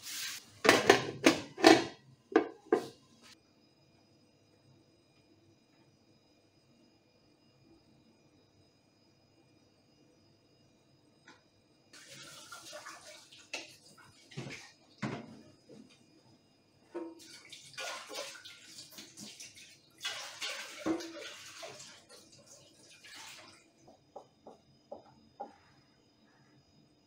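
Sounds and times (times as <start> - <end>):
tap running into a sink: 13.5 - 15.4, 17.0 - 21.8.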